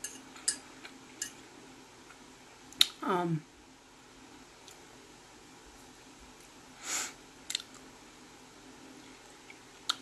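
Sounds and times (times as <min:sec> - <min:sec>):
fork clinking on plate: 0:00.0 - 0:01.4.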